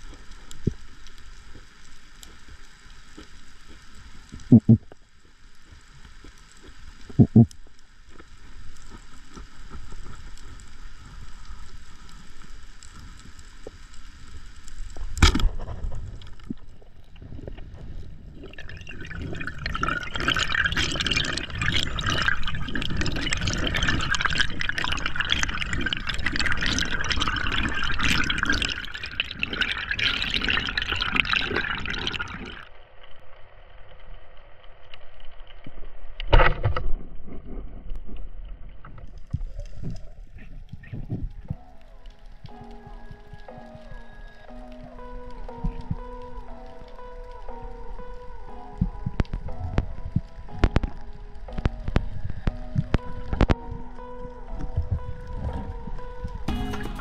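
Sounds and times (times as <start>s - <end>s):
low underwater hiss: 0.0s - 35.0s
loud bubbling water: 18.3s - 32.6s.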